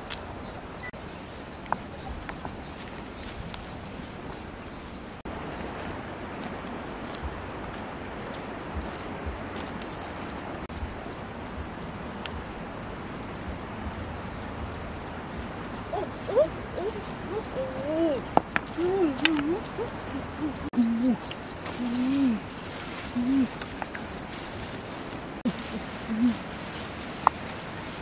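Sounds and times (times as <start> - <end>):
outdoor background hiss: 0.0 - 28.0
insects chirping: 0.1 - 10.7.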